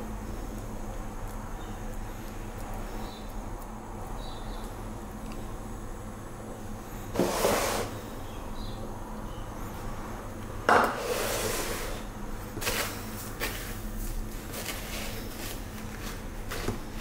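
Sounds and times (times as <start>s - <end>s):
hands rustling in breadcrumbs: 12.5s - 17.0s.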